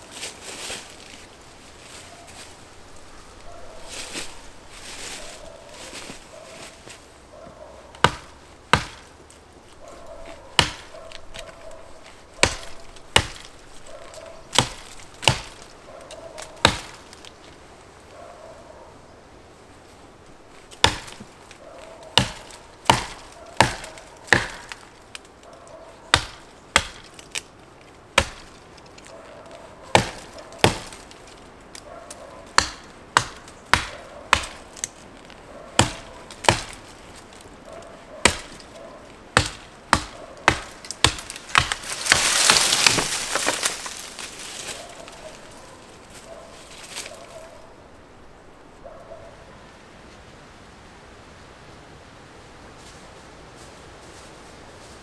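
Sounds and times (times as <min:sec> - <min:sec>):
tree falling through branches: 0:00.0 - 0:07.2, 0:32.6 - 0:47.7
hatchet chopping wood: 0:08.0 - 0:09.1, 0:10.6 - 0:11.6, 0:12.4 - 0:13.6, 0:14.5 - 0:15.7, 0:16.5 - 0:17.1, 0:20.7 - 0:21.3, 0:22.2 - 0:24.9, 0:26.1 - 0:27.4, 0:28.2 - 0:28.6, 0:29.9 - 0:31.1, 0:32.5 - 0:34.9, 0:35.8 - 0:36.9, 0:38.2 - 0:38.7, 0:39.3 - 0:44.0.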